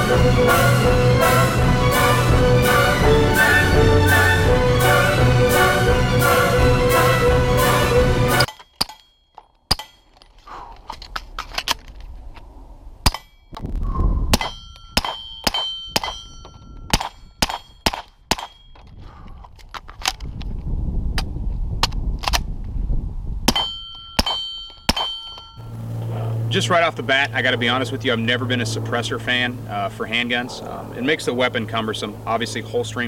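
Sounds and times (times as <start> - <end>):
high metallic ring: 14.4 - 18.9, 23.5 - 25.8.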